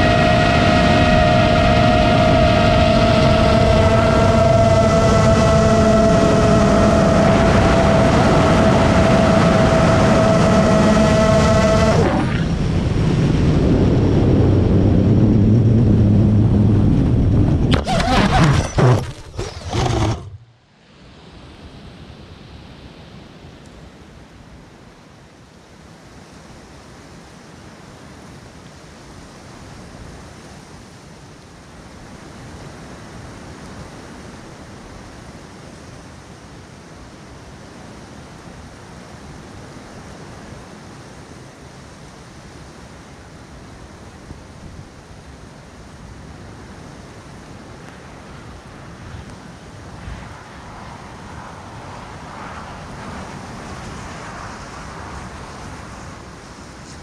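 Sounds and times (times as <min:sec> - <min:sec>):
wind hissing on microphone: 0:00.0 - 0:20.5, 0:37.6 - 0:57.0
drone motors humming: 0:01.5 - 0:12.4, 0:15.1 - 0:20.5.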